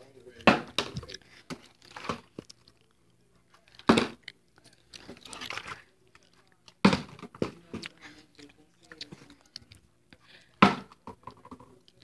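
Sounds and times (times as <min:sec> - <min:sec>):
plastic handling noise: 0:00.4 - 0:02.6, 0:04.9 - 0:08.0
plastic bottle thumping on wooden table: 0:10.6 - 0:11.5.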